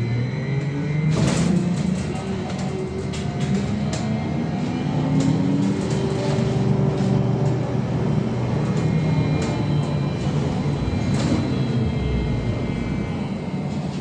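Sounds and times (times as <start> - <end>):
road and tyre noise: 0.0 - 14.0.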